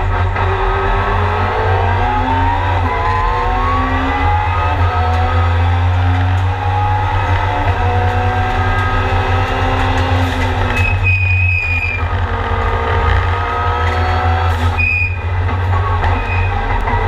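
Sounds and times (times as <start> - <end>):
race car engine accelerating: 0.0 - 17.0
short high whistle: 10.8 - 12.0, 14.8 - 15.2.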